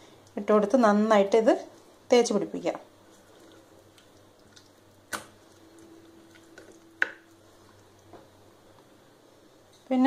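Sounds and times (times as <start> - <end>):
soft squishing of fish: 2.9 - 9.2.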